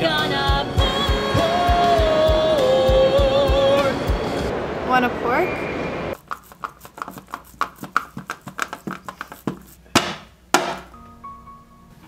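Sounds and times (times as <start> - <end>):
raw meat being slapped: 6.3 - 10.9.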